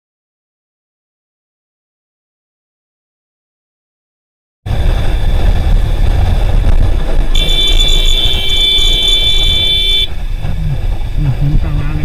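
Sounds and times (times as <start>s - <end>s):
vehicle wind and road noise: 4.7s - 12.0s
steady high-pitched tone: 7.4s - 10.1s.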